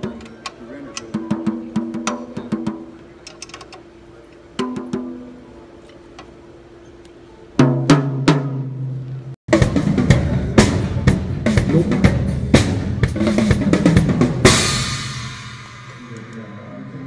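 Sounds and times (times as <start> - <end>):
drum kit groove: 0.0 - 6.4, 7.6 - 17.0
tom drum strikes: 1.1 - 3.0, 4.6 - 5.4, 9.5 - 17.0
cymbal crash: 9.6 - 17.0.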